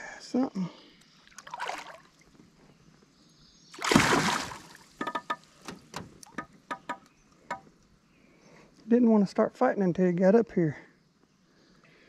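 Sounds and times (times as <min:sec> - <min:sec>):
fish splashing at water surface: 0:03.8 - 0:04.9.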